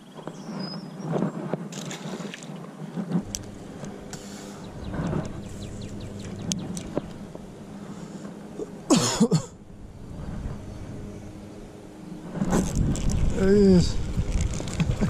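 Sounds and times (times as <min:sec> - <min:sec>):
person coughing: 0:08.9 - 0:09.6.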